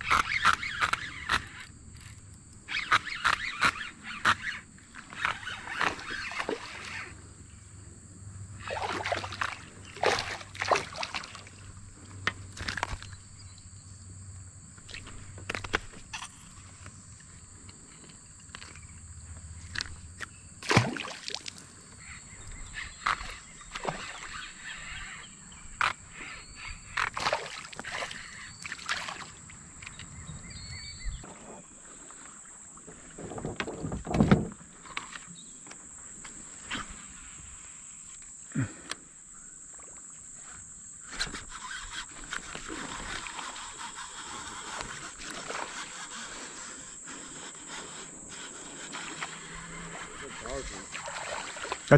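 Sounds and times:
clicks and knocks in plastic kayak: 0:10.0 - 0:13.3, 0:14.7 - 0:20.4, 0:32.8 - 0:36.9
high-pitched insect drone: 0:21.8 - 0:31.2, 0:36.8 - 0:51.9.

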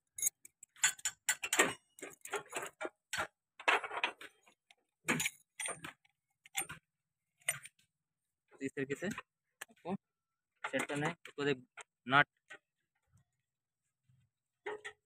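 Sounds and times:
metal parts clicking and clinking: 0:00.1 - 0:07.8.

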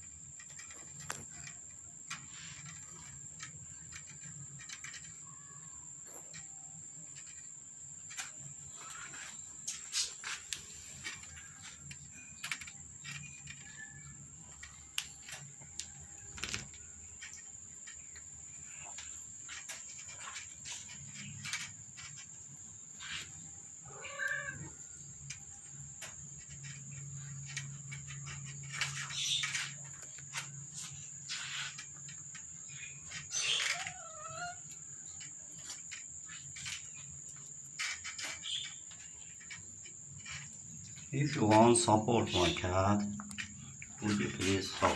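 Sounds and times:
cat meowing: 0:23.9 - 0:24.8.

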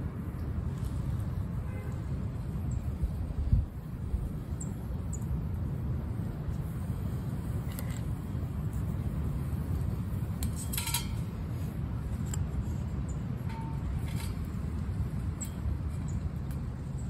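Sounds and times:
wind rumble on microphone: 0:00.0 - 0:17.0
ringing tap on metal fire pit: 0:10.4 - 0:11.4, 0:13.1 - 0:14.6.

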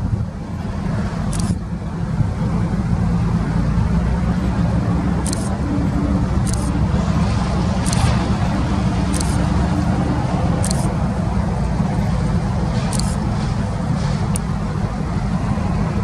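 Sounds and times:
diesel locomotive engine drone: 0:00.0 - 0:16.0
short sharp clicks: 0:01.3 - 0:01.6, 0:07.8 - 0:08.2, 0:09.1 - 0:09.5, 0:10.6 - 0:10.9.

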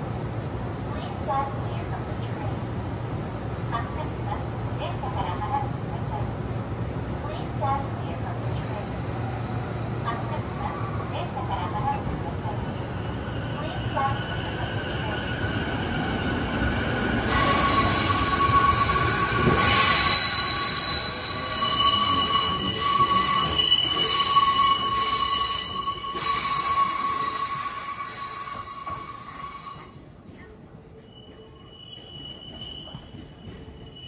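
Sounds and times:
rumble of train cars: 0:00.0 - 0:34.0
train wheels squealing: 0:12.6 - 0:30.1, 0:31.0 - 0:34.0.

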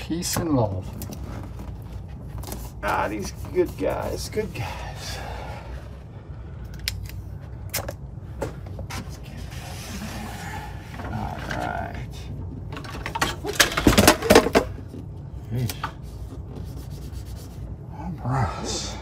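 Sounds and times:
steady low hum: 0:00.0 - 0:19.0
rubbing and scraping: 0:08.9 - 0:12.0, 0:16.0 - 0:17.8.

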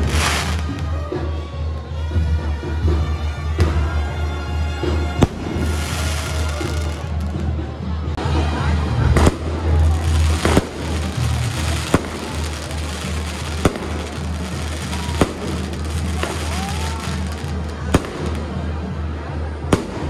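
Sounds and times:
fireworks bangs: 0:00.0 - 0:01.0, 0:05.1 - 0:07.5, 0:09.2 - 0:18.8, 0:19.7 - 0:20.0.

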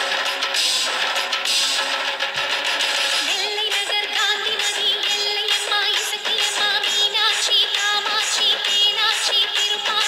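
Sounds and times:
high singing voice with vibrato: 0:03.2 - 0:10.0.

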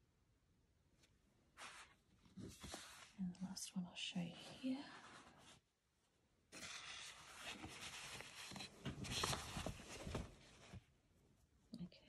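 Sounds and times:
handling noise rustling: 0:06.6 - 0:11.0.

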